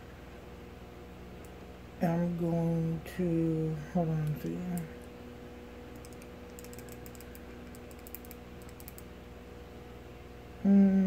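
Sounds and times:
steady low hum: 0.0s - 11.0s
rapid light clicks: 5.9s - 9.1s.

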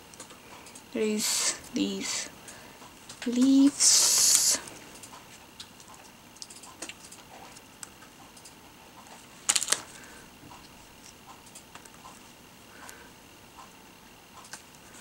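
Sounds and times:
plastic sheet crinkling: 9.4s - 10.1s
paper taps and rustles: 9.5s - 9.9s.

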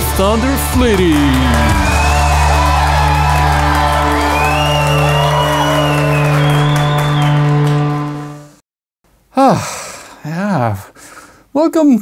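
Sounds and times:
talk show theme music: 0.0s - 8.6s.

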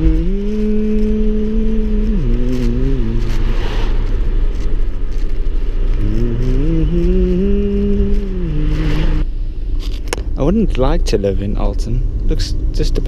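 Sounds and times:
car engine: 0.0s - 13.0s
road rumble: 0.0s - 13.0s.

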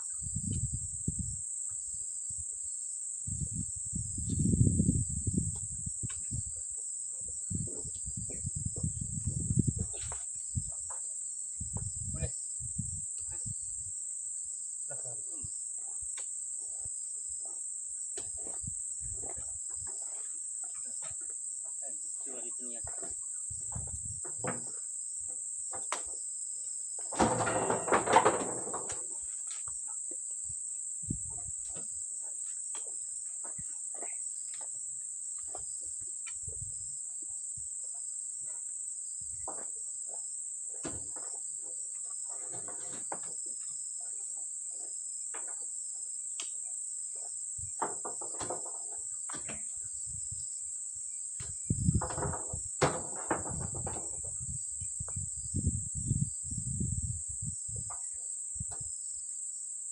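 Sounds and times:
insects buzzing: 0.0s - 59.9s
fruit bunches thudding onto truck: 27.0s - 29.6s, 51.4s - 54.2s.

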